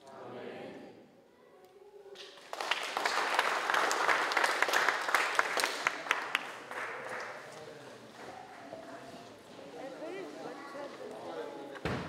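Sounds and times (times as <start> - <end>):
audience applauding: 2.2 - 7.5.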